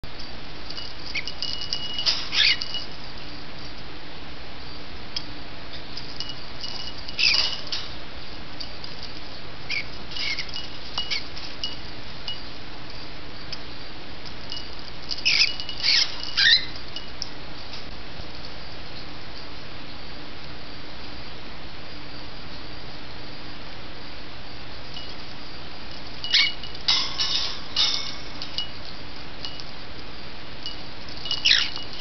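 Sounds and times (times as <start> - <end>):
small metal bell jingling: 0.2 - 3.8, 5.8 - 8.0, 8.6 - 13.1, 14.3 - 17.8, 24.7 - 32.0.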